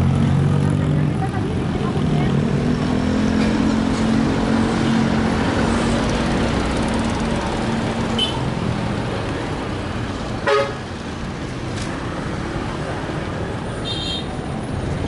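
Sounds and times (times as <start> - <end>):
truck engine passing: 0.0 - 13.7
vehicle horn beep: 8.2 - 8.4, 10.4 - 10.8, 13.8 - 14.3.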